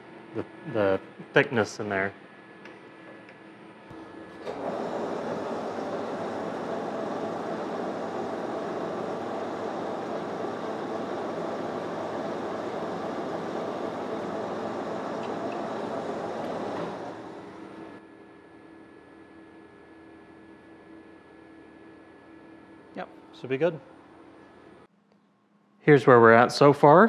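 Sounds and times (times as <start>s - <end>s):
metal lathe running: 4.0s - 18.0s
lathe tool cutting metal: 4.5s - 17.4s.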